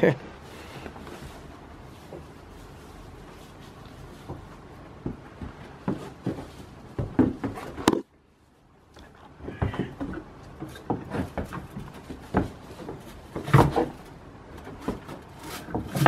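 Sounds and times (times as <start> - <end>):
rustling in hay: 0.3 - 4.8
hooves knocking on wooden walls: 4.0 - 8.0, 9.0 - 16.0.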